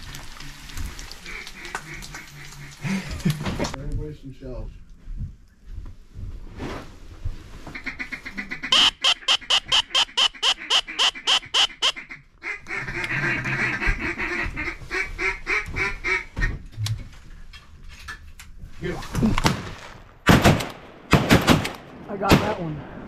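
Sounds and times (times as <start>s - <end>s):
rolling chatter of duck call: 7.8s - 12.1s
duck call quacks: 7.8s - 16.5s.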